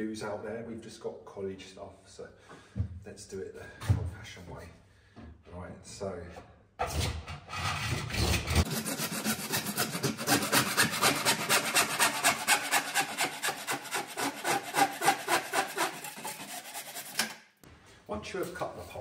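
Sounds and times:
hand saw cutting plastic pipe: 6.8s - 17.4s.

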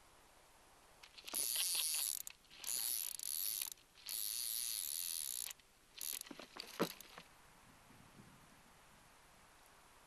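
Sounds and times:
fly reel drag buzzing: 1.2s - 7.1s.

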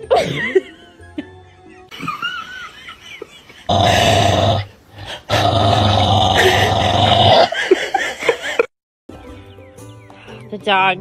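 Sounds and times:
dog growling: 3.7s - 7.5s.

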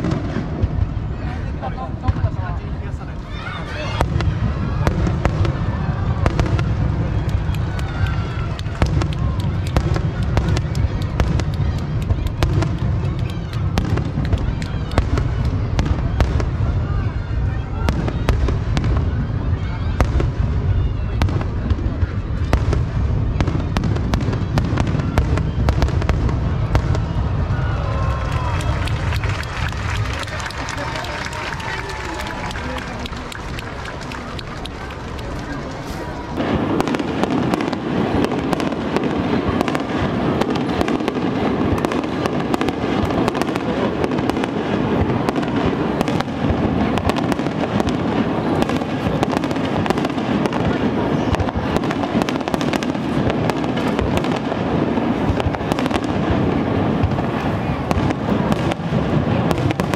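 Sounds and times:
firework bangs and crackles: 0.0s - 59.9s.

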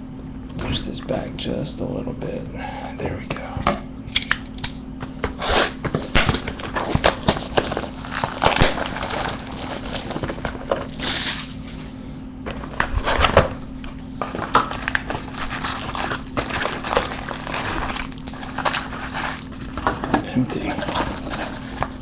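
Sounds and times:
wrapper crinkling and rustling: 5.9s - 22.0s.

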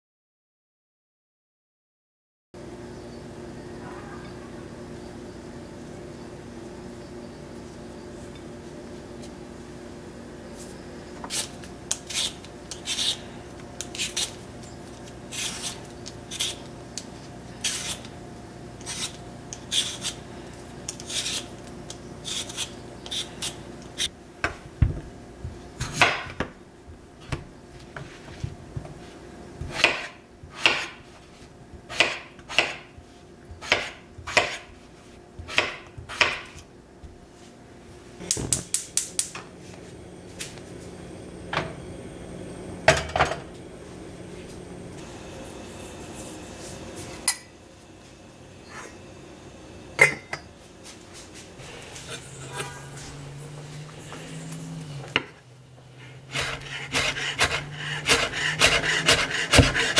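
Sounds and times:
steady low hum: 2.6s - 59.9s
knife chopping on cutting board: 29.6s - 31.0s, 31.9s - 32.9s, 33.6s - 34.7s, 35.4s - 36.6s, 56.3s - 59.9s.

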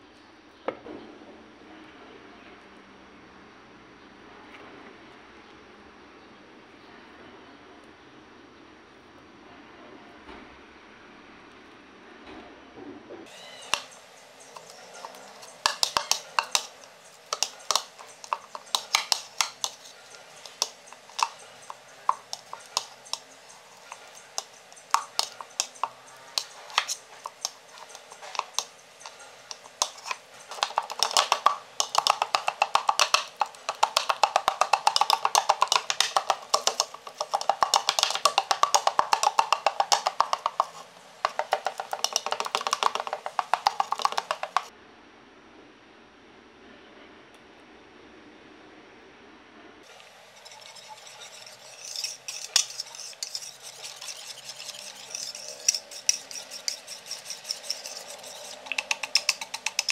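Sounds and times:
spoon mashing banana in a bowl: 13.3s - 44.7s, 49.9s - 59.9s.

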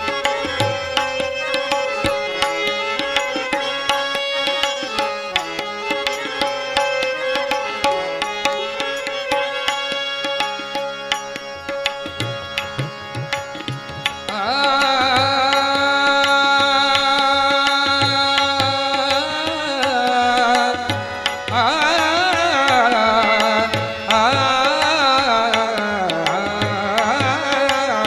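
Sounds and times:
harmonium drone: 0.0s - 28.0s
tabla beat: 0.0s - 28.0s
man singing wordless melody: 14.0s - 28.0s.

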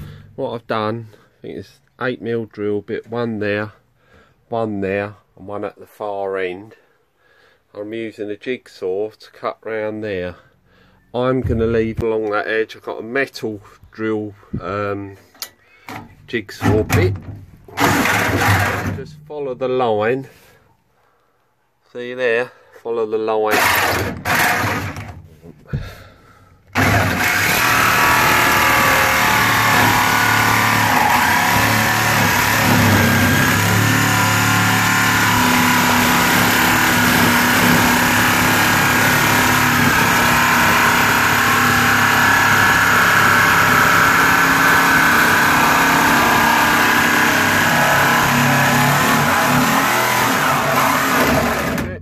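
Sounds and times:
jigsaw sawing through sheet steel: 17.7s - 19.0s, 23.5s - 25.2s, 26.7s - 52.0s.

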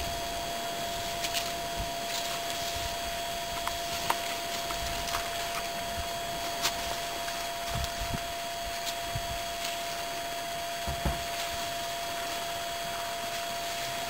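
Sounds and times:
faint high whine: 0.0s - 14.0s
steady hiss: 0.0s - 14.0s
branches cracking and snapping: 1.0s - 10.4s.

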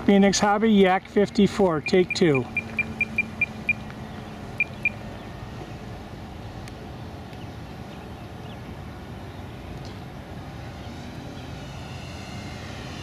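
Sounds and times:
steady background noise: 0.0s - 13.0s
short high electronic beeps: 1.8s - 3.8s.

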